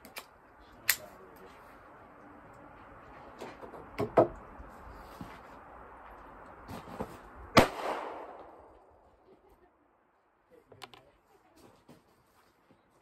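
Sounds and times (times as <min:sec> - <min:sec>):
gunshot with echo: 0:07.6 - 0:08.7.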